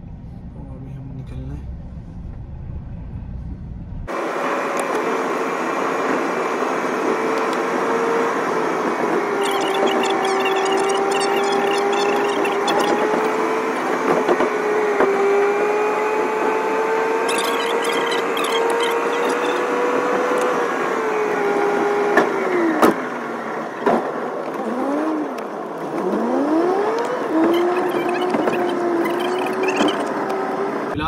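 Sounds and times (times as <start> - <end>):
road and engine noise in car: 0.0 - 31.0
whining tone: 4.7 - 22.6, 26.0 - 30.8
sharp clicks: 17.3 - 19.6, 27.0 - 30.4.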